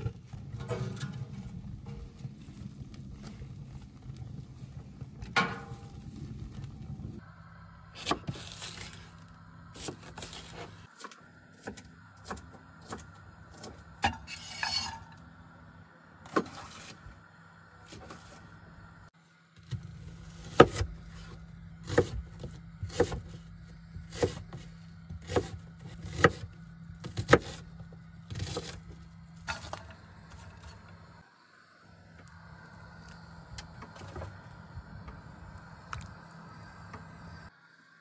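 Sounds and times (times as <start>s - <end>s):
steady low hum: 0.0s - 38.0s
knife chopping on wooden board: 25.2s - 27.6s.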